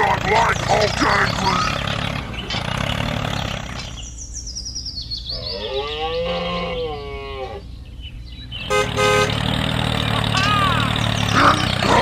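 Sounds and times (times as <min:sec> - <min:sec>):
low engine rumble: 0:00.0 - 0:05.3, 0:07.1 - 0:12.0
short horn toot: 0:08.7 - 0:09.4.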